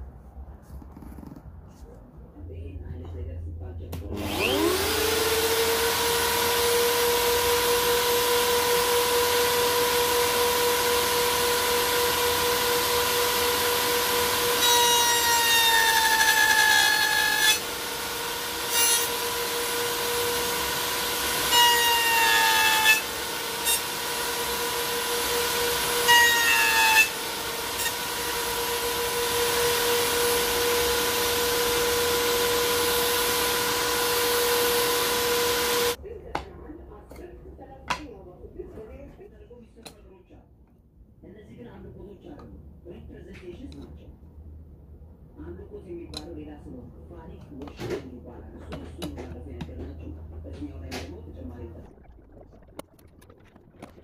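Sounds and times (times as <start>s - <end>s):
electric router motor humming: 4.1s - 36.0s
router bit cutting wood whine: 4.2s - 36.0s.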